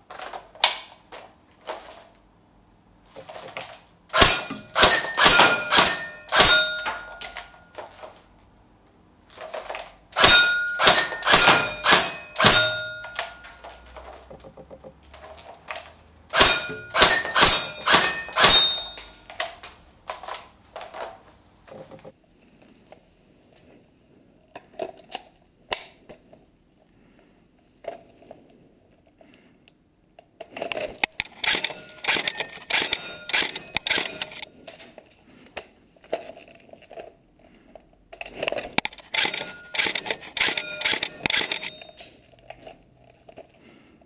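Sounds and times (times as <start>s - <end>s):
airsoft gun shots: 4.1s - 7.4s, 10.2s - 13.6s, 16.3s - 19.2s
steel target plates ringing: 4.2s - 7.8s, 10.2s - 14.0s, 16.3s - 19.3s, 31.6s - 34.4s, 39.2s - 41.9s.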